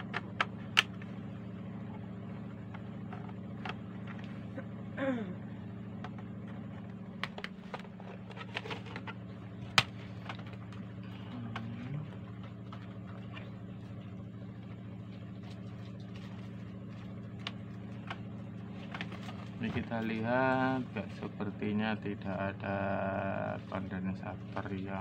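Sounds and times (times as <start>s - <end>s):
steady low hum: 0.0s - 25.0s
clicks and knocks of case handling: 6.0s - 10.8s.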